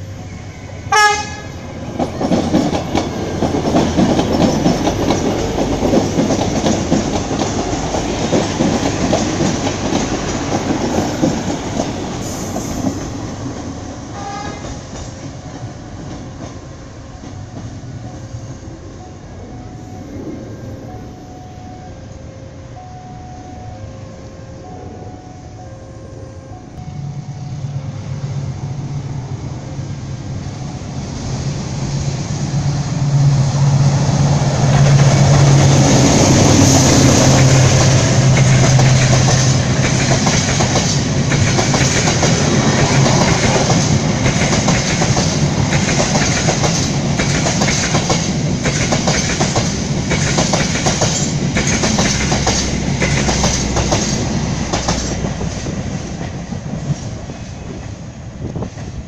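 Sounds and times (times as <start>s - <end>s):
diesel locomotive engine drone: 0.0s - 59.0s
train wheels clacking over rail joints: 2.0s - 13.1s, 36.4s - 57.9s.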